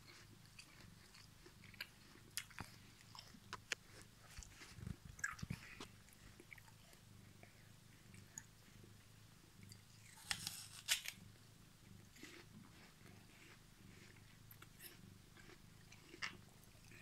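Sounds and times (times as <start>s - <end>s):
cat purring: 0.0s - 17.0s
kittens suckling: 0.2s - 8.5s.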